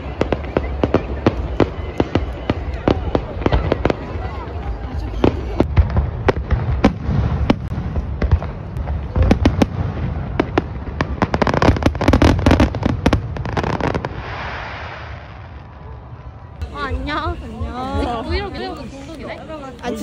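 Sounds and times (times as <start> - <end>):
sharp bangs and crackles: 0.0 - 15.8.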